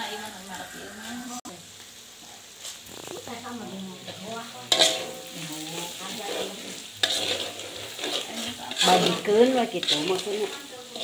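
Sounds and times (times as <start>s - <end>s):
metal spatula scraping wok: 0.0s - 1.4s, 2.6s - 11.0s
noodles frying in wok: 0.0s - 11.0s
spatula clanking against wok: 4.7s - 5.5s, 6.2s - 11.0s.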